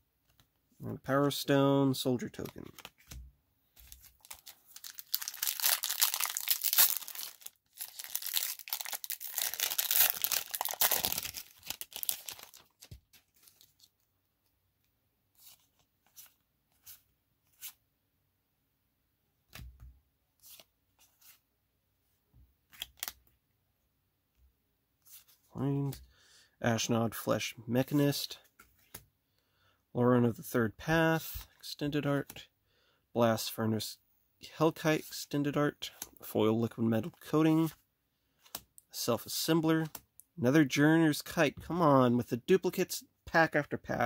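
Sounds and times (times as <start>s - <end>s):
wrapper tearing and crinkling: 3.9s - 13.9s.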